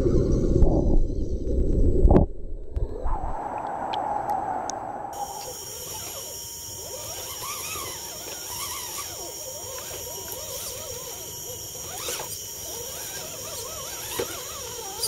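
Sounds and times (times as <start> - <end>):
steady high whine: 0.0 - 15.0
electric motor and gears whining: 5.1 - 15.0.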